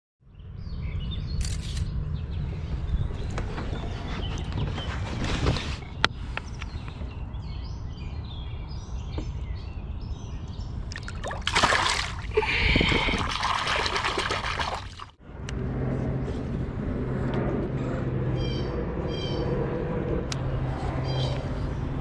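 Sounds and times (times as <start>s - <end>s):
water splashing and sloshing: 10.8s - 15.2s.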